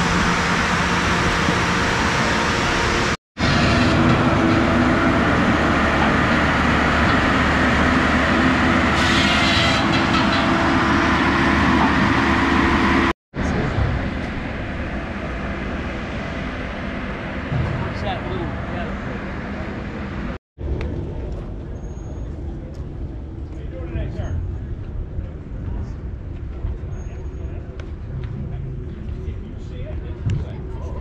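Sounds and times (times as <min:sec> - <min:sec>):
heavy equipment running: 0:00.0 - 0:25.7.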